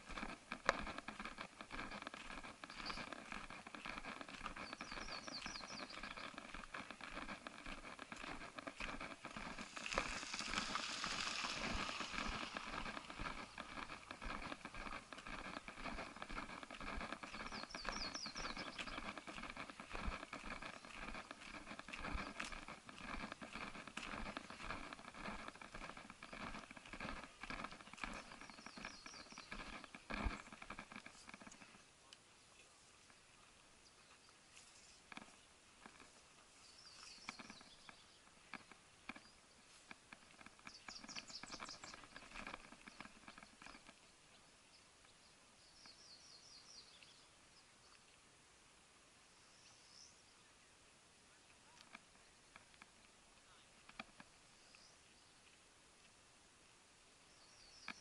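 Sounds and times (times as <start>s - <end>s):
footsteps on gravel: 0.0s - 31.8s, 34.5s - 44.0s.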